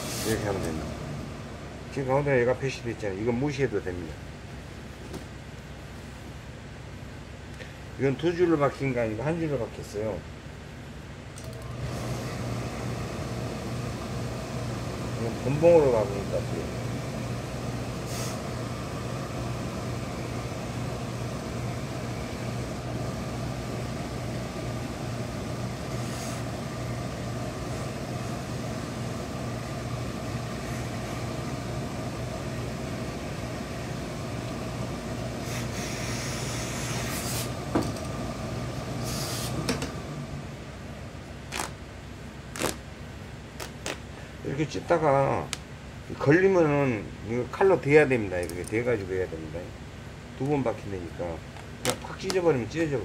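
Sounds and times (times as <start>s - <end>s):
steam hissing: 0.0s - 0.5s, 18.0s - 18.5s, 35.4s - 37.6s, 39.0s - 39.6s
pressing machine hum: 0.0s - 3.6s, 11.3s - 41.7s.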